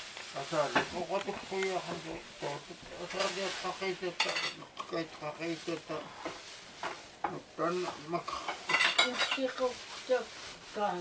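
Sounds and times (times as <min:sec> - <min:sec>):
plastic bag crinkling: 0:00.0 - 0:11.0
people talking: 0:09.0 - 0:11.0.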